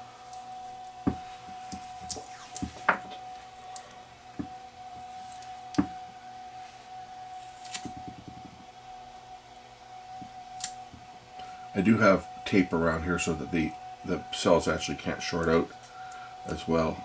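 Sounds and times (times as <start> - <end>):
faint steady whine: 0.0 - 17.0
tape being pulled and wrapped: 7.6 - 7.9.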